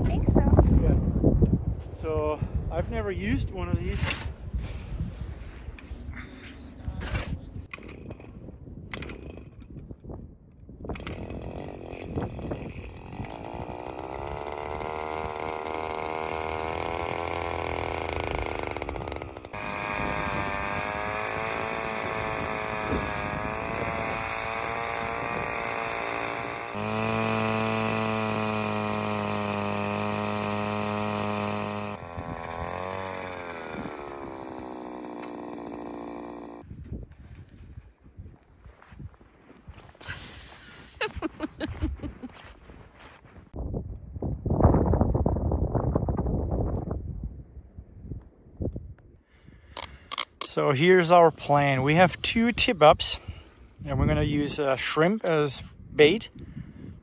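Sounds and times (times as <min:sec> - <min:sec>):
ice auger motor drilling: 0:07.7 - 0:09.8, 0:10.9 - 0:36.7, 0:49.6 - 0:50.6.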